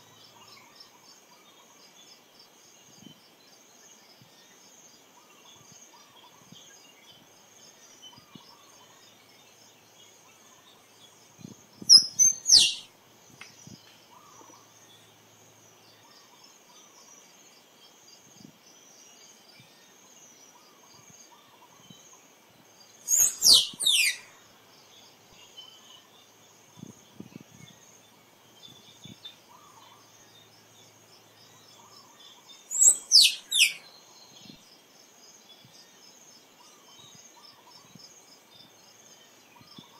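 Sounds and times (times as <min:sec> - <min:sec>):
insects droning: 0:00.0 - 0:39.9
squirrel chirping: 0:11.8 - 0:12.9, 0:23.1 - 0:24.3, 0:32.7 - 0:33.8.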